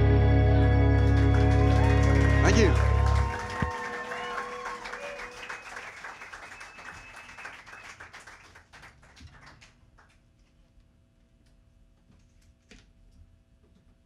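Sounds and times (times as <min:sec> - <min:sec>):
audience clapping: 0:00.9 - 0:10.3.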